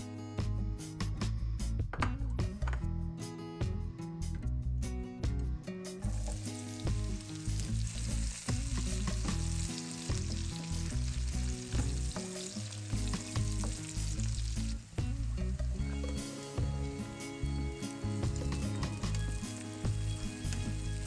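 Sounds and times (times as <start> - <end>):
low background music: 0.0 - 21.0
onion sizzling in pan: 6.0 - 21.0.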